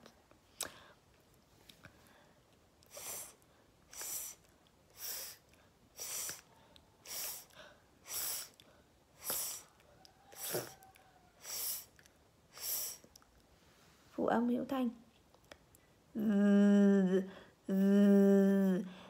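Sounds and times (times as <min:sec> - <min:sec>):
woman hissing through teeth: 0:02.9 - 0:08.6, 0:09.2 - 0:13.2.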